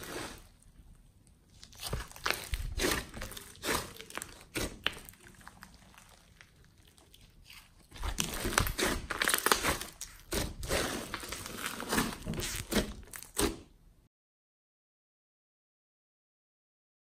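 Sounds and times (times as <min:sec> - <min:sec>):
hands squeezing wet slime: 0:01.3 - 0:13.6.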